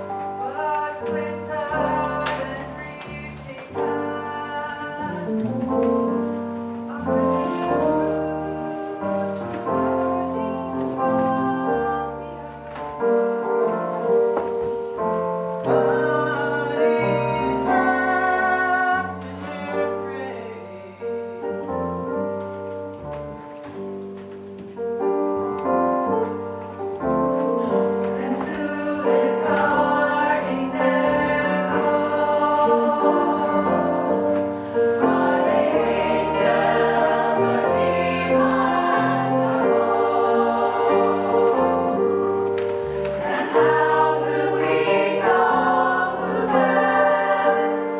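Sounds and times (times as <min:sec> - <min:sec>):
piano accompaniment: 0:00.0 - 0:47.9
choir singing: 0:07.3 - 0:12.4, 0:15.7 - 0:21.1, 0:28.1 - 0:47.9.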